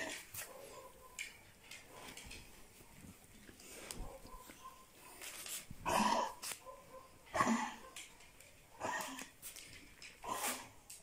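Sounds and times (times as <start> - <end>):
dog coughing: 7.3 - 7.9, 8.8 - 9.3.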